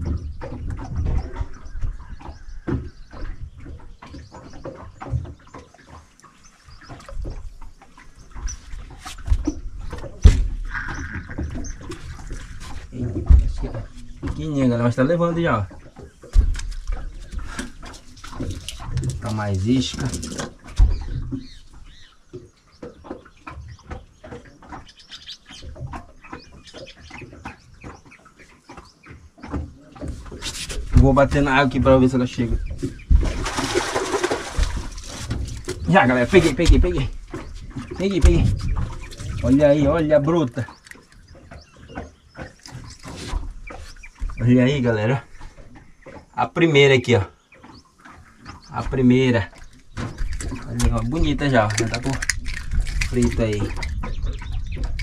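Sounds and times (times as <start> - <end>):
birds chirping: 0.0 - 55.0
knocks and taps in boat: 0.0 - 55.0.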